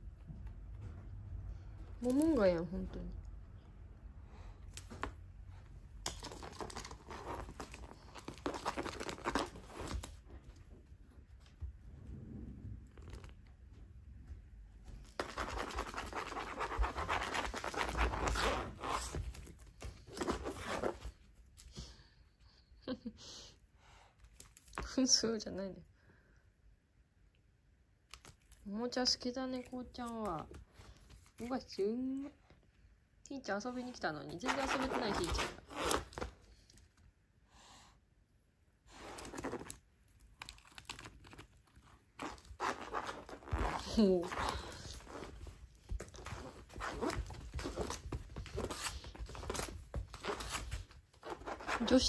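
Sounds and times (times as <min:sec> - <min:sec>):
cat claws scratching on matting: 0:06.0 - 0:10.6, 0:15.0 - 0:21.9, 0:38.9 - 0:52.0.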